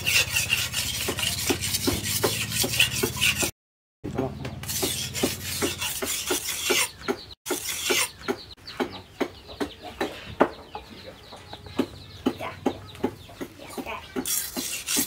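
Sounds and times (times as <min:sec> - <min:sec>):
knife scraping on whetstone: 0:00.0 - 0:03.5, 0:04.6 - 0:08.2, 0:14.2 - 0:15.0
hens clucking: 0:08.0 - 0:14.2.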